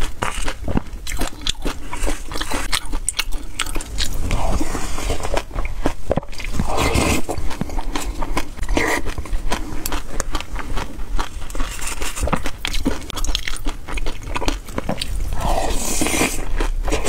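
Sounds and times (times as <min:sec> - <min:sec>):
plastic spoon scraping glass bowl: 0:11.5 - 0:12.5
slurp from spoon: 0:15.4 - 0:17.0.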